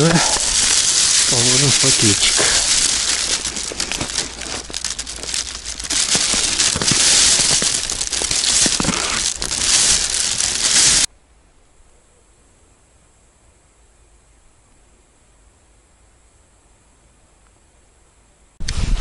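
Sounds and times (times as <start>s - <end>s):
plastic bag crinkling: 0.0s - 11.1s.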